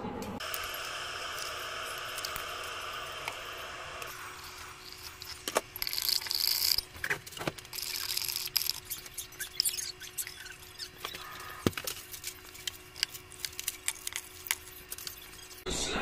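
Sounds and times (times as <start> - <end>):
steady hiss: 0.4 - 6.9.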